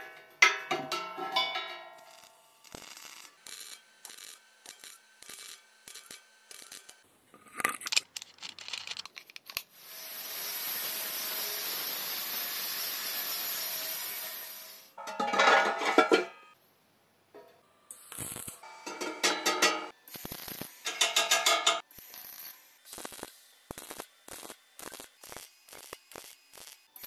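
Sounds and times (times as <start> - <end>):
angle grinder grinding steel: 9.8 - 15.0.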